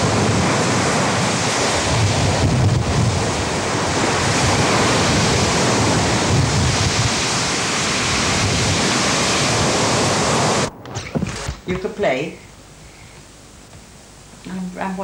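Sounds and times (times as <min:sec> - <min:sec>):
sea surf breaking on shore: 0:00.0 - 0:11.5
wind buffeting microphone: 0:00.0 - 0:12.0.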